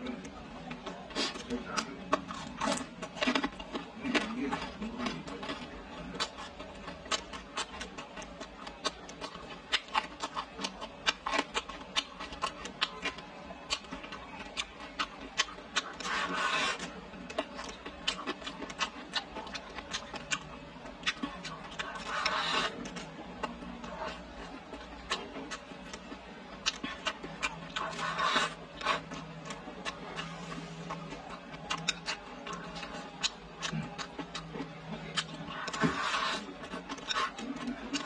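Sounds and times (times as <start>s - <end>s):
wet chewing smacks: 0.1s - 38.0s
slurping sounds: 16.0s - 16.9s.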